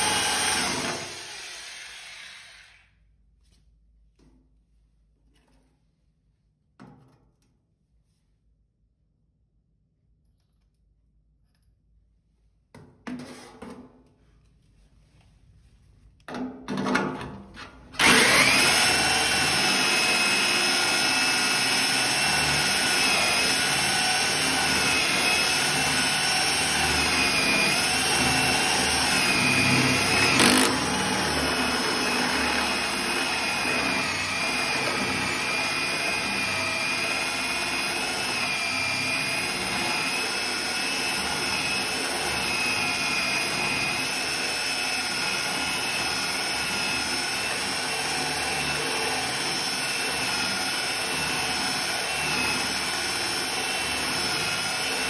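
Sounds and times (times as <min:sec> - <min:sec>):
drill grinding into steel: 0:00.0 - 0:02.9, 0:18.0 - 0:55.0.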